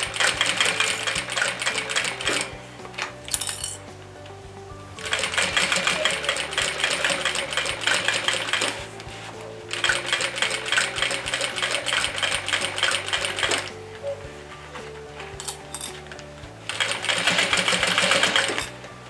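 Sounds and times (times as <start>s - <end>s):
sewing machine stitching: 0.0s - 2.5s, 5.0s - 8.8s, 9.7s - 13.7s, 16.6s - 18.8s.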